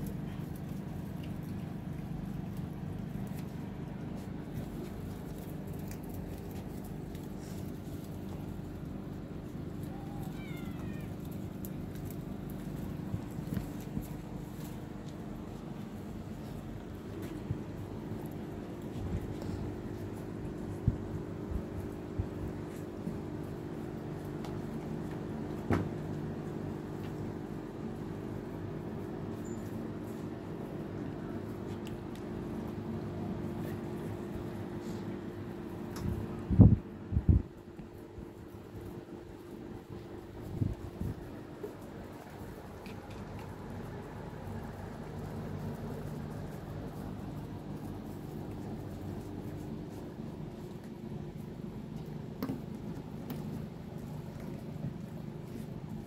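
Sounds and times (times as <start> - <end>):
steady low hum: 0.0 - 56.0
cat meowing: 9.8 - 11.4.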